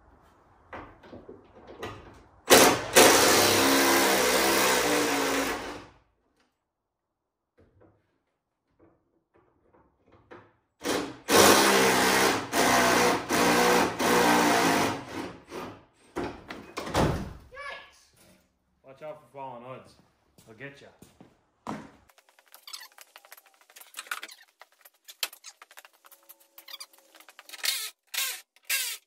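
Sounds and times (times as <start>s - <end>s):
handheld power tool bursts: 2.5s - 5.8s, 27.5s - 29.0s
squeaky chirps: 22.5s - 29.0s.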